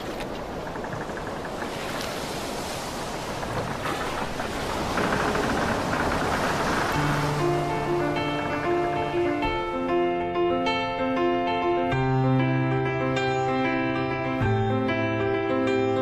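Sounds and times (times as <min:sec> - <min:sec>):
water rushing along a boat: 0:00.0 - 0:12.0
music: 0:06.9 - 0:16.0.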